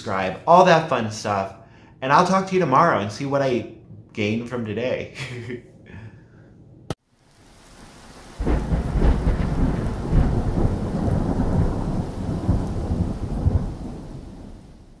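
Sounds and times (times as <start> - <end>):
thunder rumbling: 2.8 - 4.8, 7.4 - 15.0
steady rain: 7.0 - 15.0.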